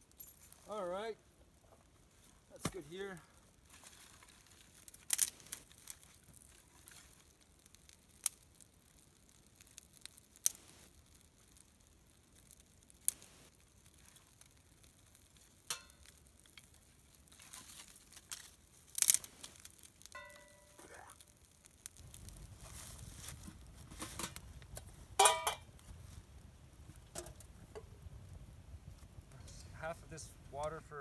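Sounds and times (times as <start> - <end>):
campfire twigs snapping and crackling: 0.0 - 31.0
dry twigs and leaves rustling: 0.1 - 29.3.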